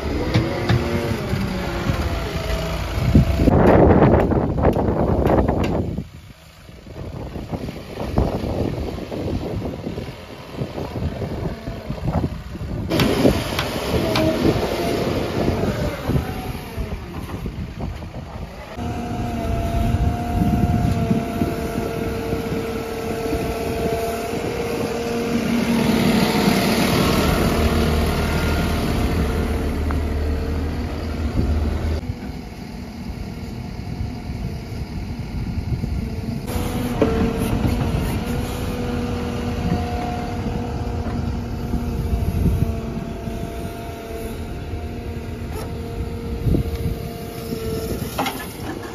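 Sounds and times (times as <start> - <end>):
diesel engine under load: 0.0 - 48.9
hydraulic whine: 11.0 - 48.9.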